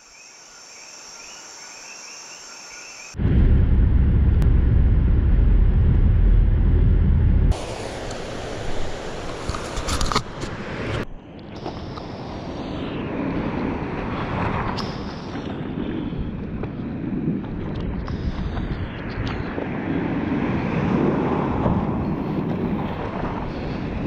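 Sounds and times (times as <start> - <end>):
car engine and road rumble: 3.2 - 11.8
outdoor hiss: 7.5 - 9.8.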